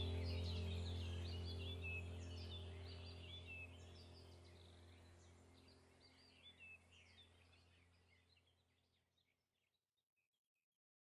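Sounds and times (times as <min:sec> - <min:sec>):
low steady hum: 0:00.0 - 0:08.3
faint birdsong chirping: 0:00.0 - 0:10.3.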